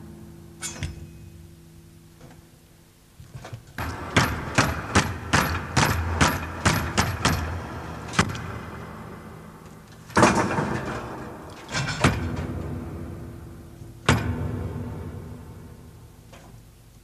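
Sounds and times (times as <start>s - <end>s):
loud ringing impact: 0.0s - 1.5s
low steady hum: 0.0s - 17.0s
sharp knocks: 3.8s - 8.5s.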